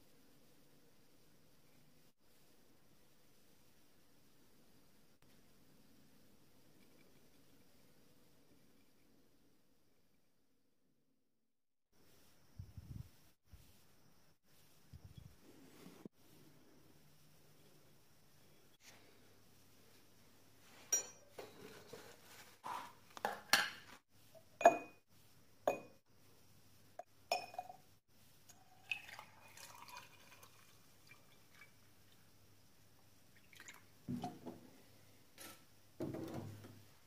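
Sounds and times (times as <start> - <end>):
liquid pouring into glass: 28.5 - 31.9, 33.4 - 33.9.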